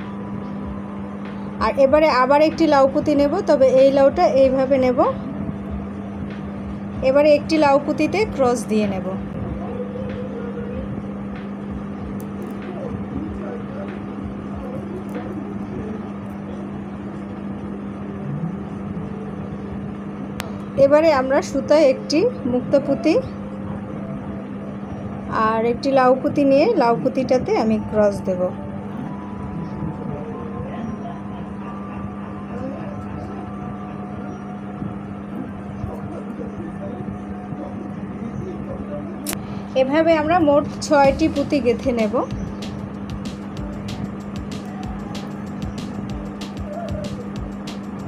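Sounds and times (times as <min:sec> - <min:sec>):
low hum: 0:00.0 - 0:48.0
mechanical drone: 0:00.0 - 0:48.0
faint distant voices: 0:06.5 - 0:19.8, 0:20.4 - 0:42.8.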